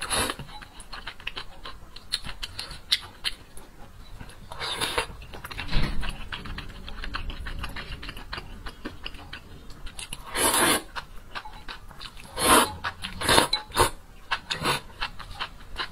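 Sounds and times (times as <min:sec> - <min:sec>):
wet chewing: 0:00.0 - 0:15.9
slurping noodles: 0:10.2 - 0:10.9, 0:12.3 - 0:14.9.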